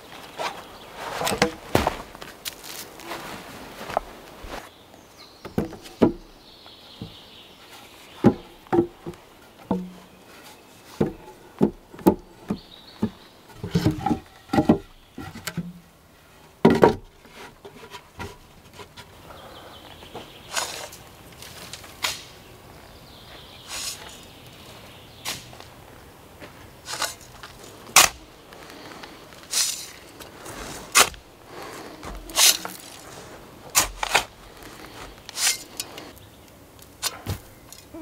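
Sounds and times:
hand tool scraping sand: 0:20.4 - 0:22.4, 0:23.6 - 0:24.3, 0:26.8 - 0:36.2.

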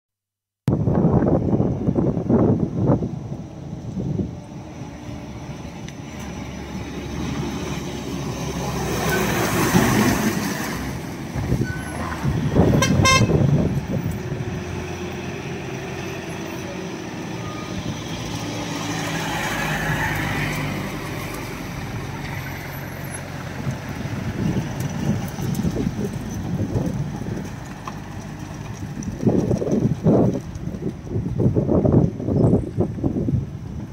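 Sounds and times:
trucks engine drone: 0:00.7 - 0:33.9
pulsing truck horn: 0:11.7 - 0:13.7.

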